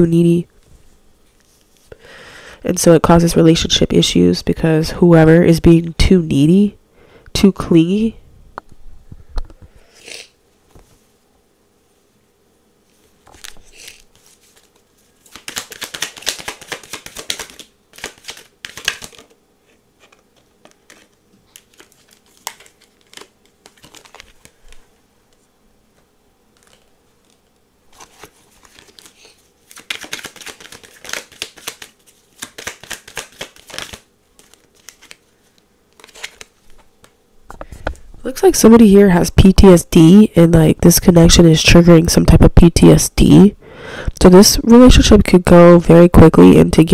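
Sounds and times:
cards being shuffled: 12.9 - 38.0.

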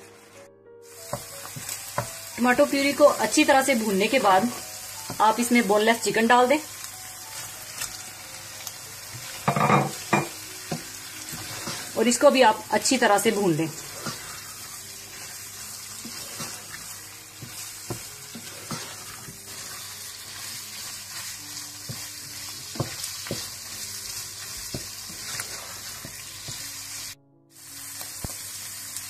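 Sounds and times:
meat sizzling in a pan: 0.0 - 29.0
spatula scraping a pan: 9.1 - 12.4, 13.1 - 26.8
spatula knocking on pan: 21.8 - 23.6, 24.6 - 25.4.

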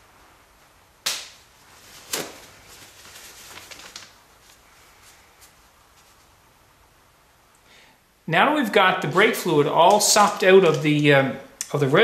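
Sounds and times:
paper towel and plastic rustling: 1.4 - 6.7, 9.0 - 11.2.

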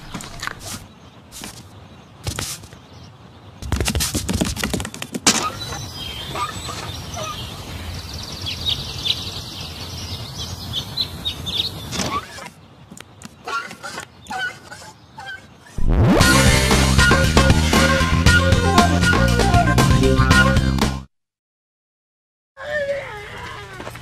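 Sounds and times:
birds chirping: 0.0 - 20.5
outdoor rush: 0.0 - 21.1.

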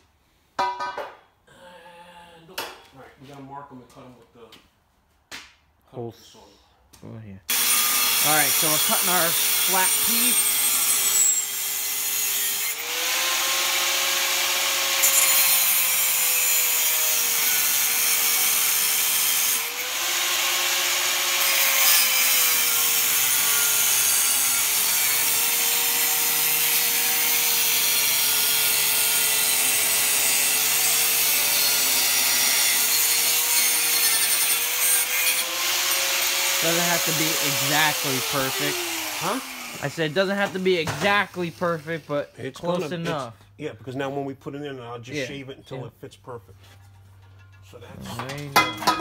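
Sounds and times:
angle grinder cutting steel: 7.5 - 43.3.

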